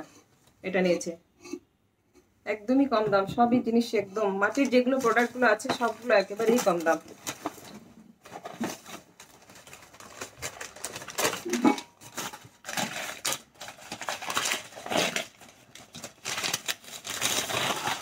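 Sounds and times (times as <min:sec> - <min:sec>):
wrapping paper rustling: 0:04.4 - 0:18.0.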